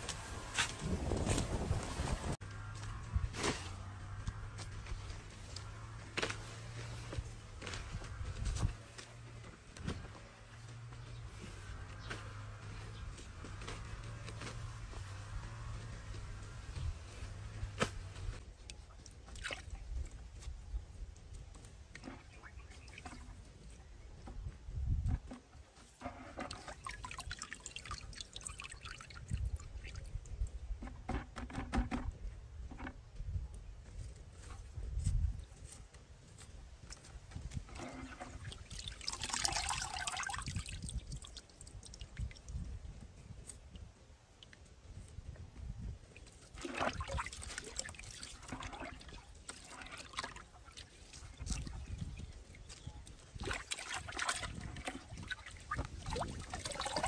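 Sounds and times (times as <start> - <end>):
hands sloshing water in bucket: 18.9 - 19.8, 25.9 - 30.1, 37.6 - 42.5, 46.2 - 57.0
water dripping into bucket: 26.4 - 30.1, 37.8 - 42.6, 46.2 - 51.9, 52.7 - 57.0.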